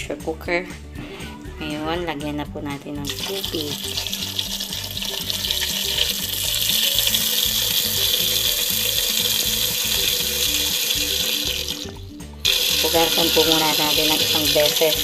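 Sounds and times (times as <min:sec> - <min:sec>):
background music: 0:00.0 - 0:15.0
tap water pouring into metal pot: 0:03.1 - 0:15.0.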